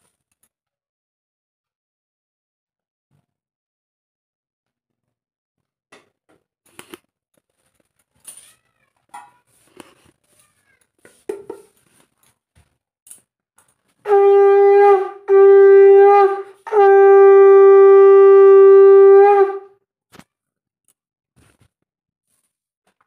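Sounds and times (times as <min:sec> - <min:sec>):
conch shell blasts: 0:14.1 - 0:19.7.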